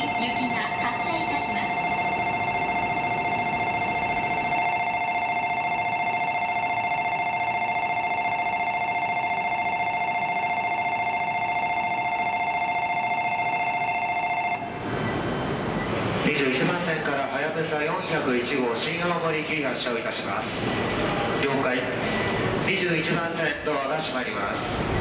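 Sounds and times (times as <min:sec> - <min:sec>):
electronic departure bell trilling: 0:00.0 - 0:14.8.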